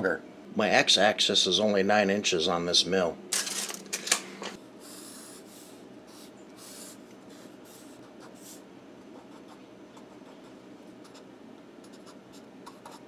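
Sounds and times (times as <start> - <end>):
felt-tip marker scratching on paper: 4.9 - 13.0.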